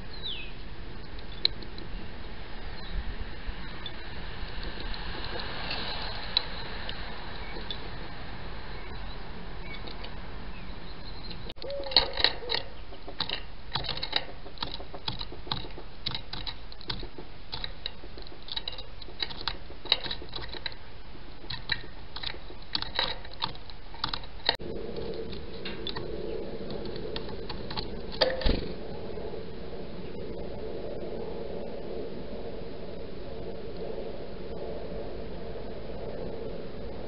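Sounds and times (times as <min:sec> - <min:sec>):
bird pecking at wire feeder: 0:11.6 - 0:28.5.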